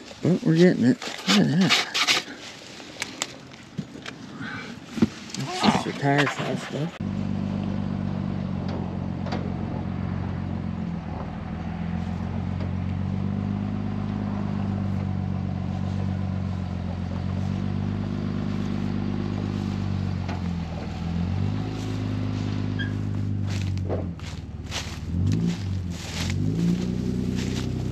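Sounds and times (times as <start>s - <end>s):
vehicle engine revving: 5.6s - 27.9s.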